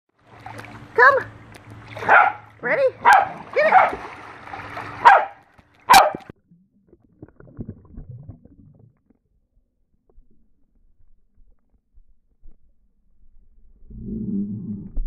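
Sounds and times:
faint water sounds: 0:00.1 - 0:12.6
dog splashing into pool: 0:00.3 - 0:06.3
dog barking: 0:02.0 - 0:04.0, 0:05.0 - 0:06.3.

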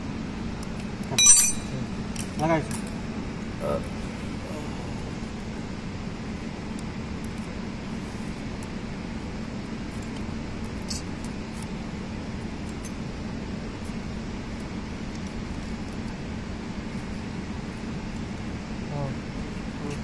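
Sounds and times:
low machine hum: 0:00.0 - 0:20.0
metallic ticks of hand tools: 0:01.2 - 0:01.8.

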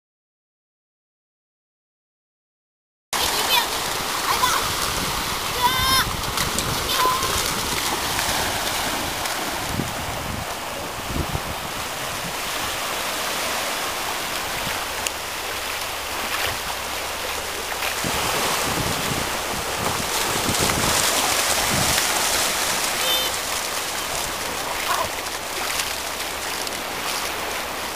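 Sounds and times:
dogs splashing in water: 0:03.2 - 0:10.1, 0:14.0 - 0:27.9
small waves washing on beach: 0:03.2 - 0:27.9.

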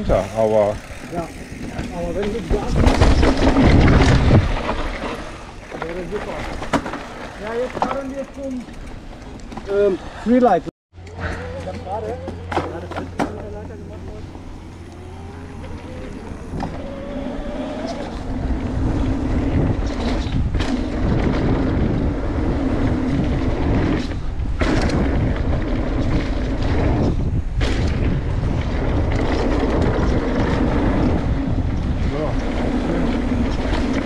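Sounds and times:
wind rushing over microphone: 0:00.0 - 0:07.9, 0:13.3 - 0:34.0
bike tyres rumbling on dirt: 0:00.0 - 0:10.0, 0:11.5 - 0:34.0.

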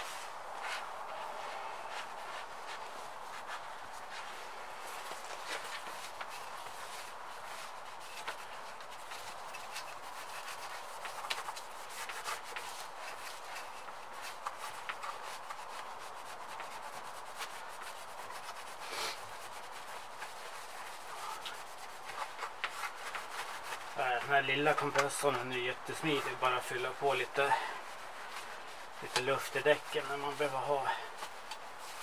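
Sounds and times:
cloth rag scrubbing: 0:00.0 - 0:32.0.

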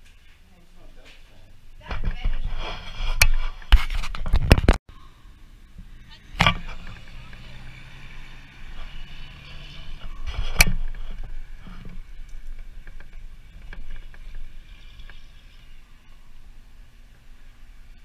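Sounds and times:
small knocks and scrapes: 0:01.0 - 0:04.8, 0:08.6 - 0:15.8
truck engine hum: 0:05.4 - 0:18.0.

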